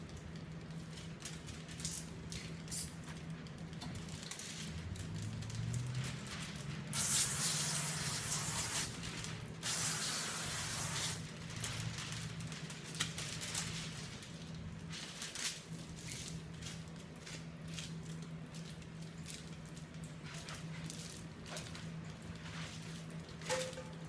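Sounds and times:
water hissing from spray nozzle: 6.9 - 8.9, 9.6 - 11.2.

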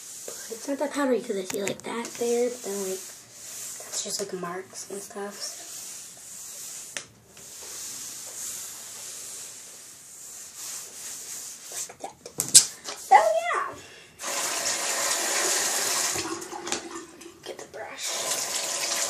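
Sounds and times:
hands rubbing countertop: 0.0 - 12.1
tap water running into sink: 14.2 - 17.3, 18.1 - 19.0.

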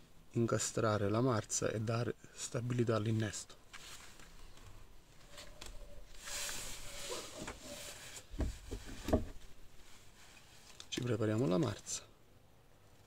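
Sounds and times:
soft rustling: 3.5 - 12.1.

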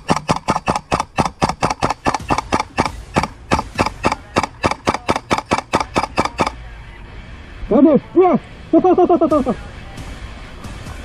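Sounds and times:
airsoft gun rapid fire: 0.0 - 6.6.

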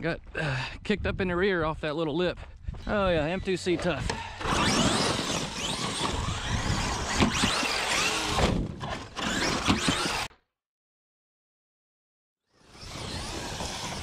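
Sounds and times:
tyres scrabbling in dirt: 2.8 - 10.3, 12.7 - 14.0
toy truck motor whining: 3.3 - 10.3, 12.5 - 14.0.

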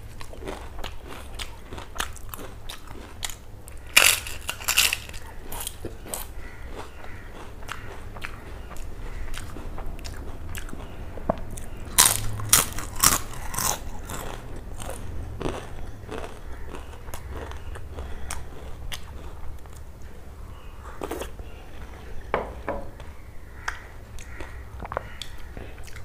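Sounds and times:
chewing: 0.0 - 20.2, 23.0 - 26.0
crisp cracker crunching: 0.2 - 10.9, 11.9 - 19.8.

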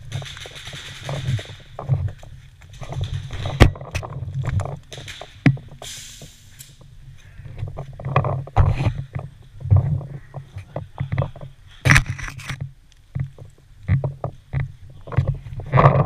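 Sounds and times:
short hiss: 5.8 - 6.8.

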